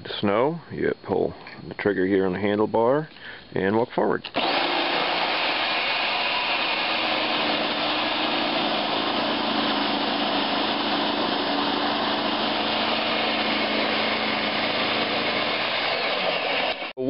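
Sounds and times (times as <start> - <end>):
snowblower running: 4.4 - 17.0.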